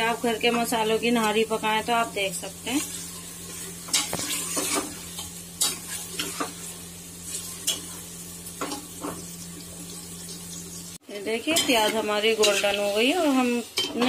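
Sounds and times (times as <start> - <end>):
onions sizzling in hot fat: 0.0 - 14.0
steel ladle scraping pot: 2.7 - 6.6.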